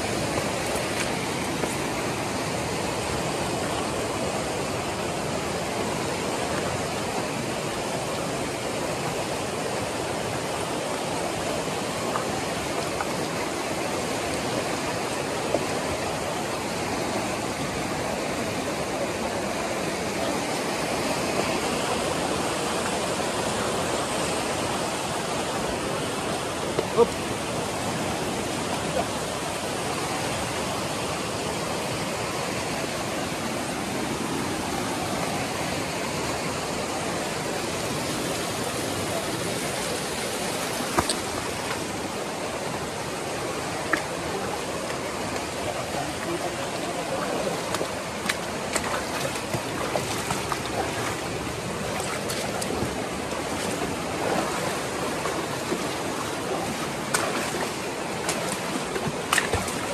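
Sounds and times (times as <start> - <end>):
water rushing: 0.0 - 59.9.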